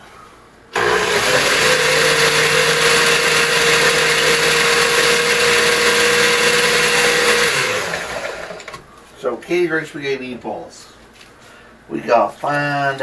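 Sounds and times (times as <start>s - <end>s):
blender motor running: 0.8s - 8.7s.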